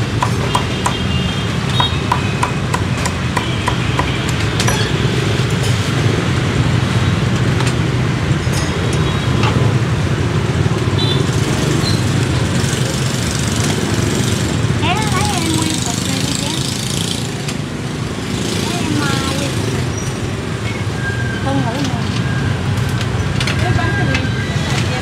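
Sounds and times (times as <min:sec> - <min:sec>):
cleaver chopping on wooden block: 0:00.2 - 0:01.0, 0:01.8 - 0:04.9.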